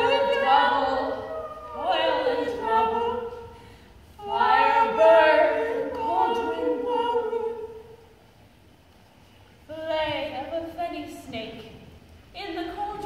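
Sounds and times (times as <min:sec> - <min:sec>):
voices singing without instruments: 0:00.0 - 0:08.0.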